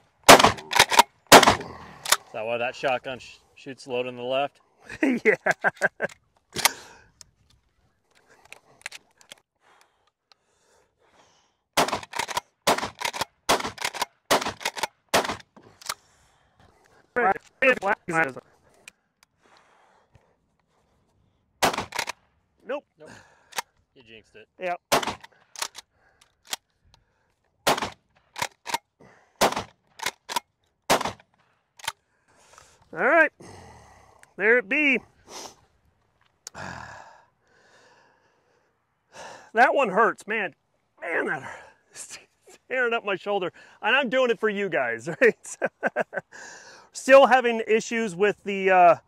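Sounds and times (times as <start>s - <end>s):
shotgun shots: 0.3s - 2.2s, 11.8s - 15.5s, 21.6s - 22.1s, 24.9s - 25.3s, 27.6s - 28.5s, 29.4s - 30.1s, 30.9s - 31.2s
shotgun pump action: 0.3s - 2.3s, 11.8s - 16.0s, 21.6s - 22.2s, 24.9s - 26.7s, 27.6s - 32.0s.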